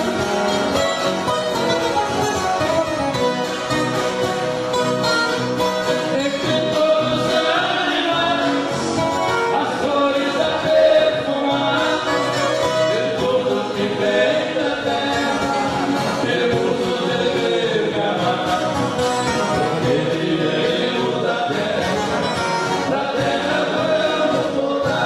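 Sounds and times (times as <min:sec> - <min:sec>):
folk guitars playing: 0:00.0 - 0:25.0
group of voices singing: 0:05.8 - 0:25.0.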